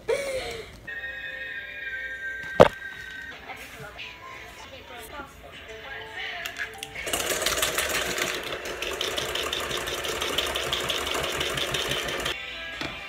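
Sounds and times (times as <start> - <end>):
beaters rattling against metal bowl: 7.0 - 12.4
electric hand mixer running: 7.0 - 12.4.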